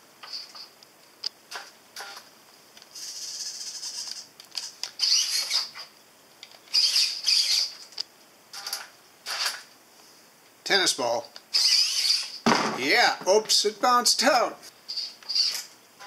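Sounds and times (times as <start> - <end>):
servo motors whining: 3.0 - 5.8, 6.7 - 7.8, 11.5 - 12.4.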